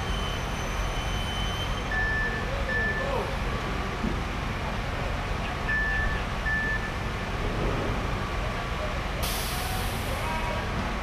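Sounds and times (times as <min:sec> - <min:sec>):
vehicle backup alarm beeping: 0:00.0 - 0:03.2, 0:05.7 - 0:07.0
diesel pump truck rumbling: 0:00.0 - 0:11.0.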